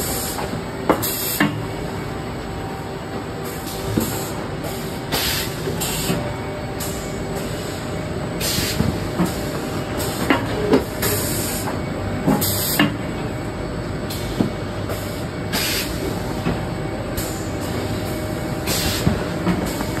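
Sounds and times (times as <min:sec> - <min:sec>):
conveyor machinery hum: 0:00.0 - 0:20.0
compressed air hisses: 0:18.7 - 0:19.2.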